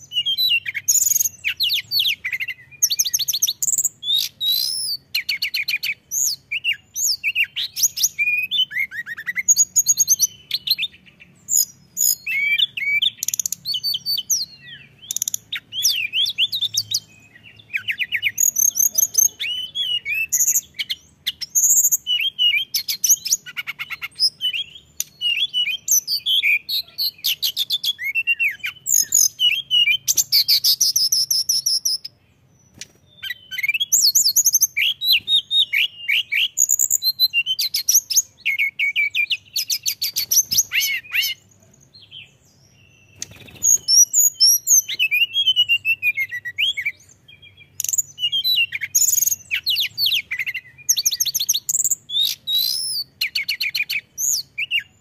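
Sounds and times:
bird singing whistles and trills: 0.0s - 55.0s.

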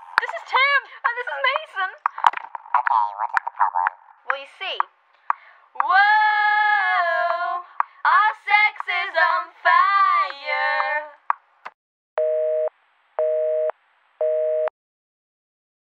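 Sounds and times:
high-pitched voice singing: 5.8s - 11.2s
telephone busy signal beeps: 12.2s - 14.7s.

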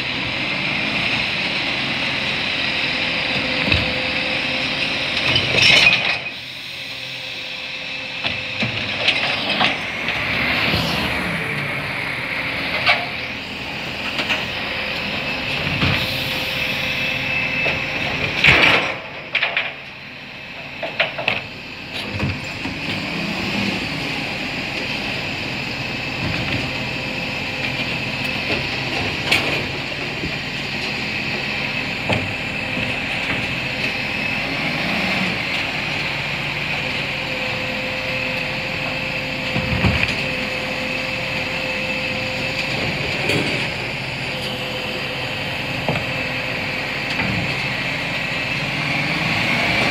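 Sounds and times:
garbage truck engine running: 0.0s - 49.9s.

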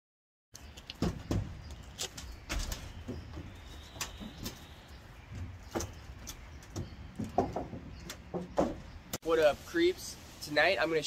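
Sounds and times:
knocks on sheet-metal roof: 6.7s - 8.8s.

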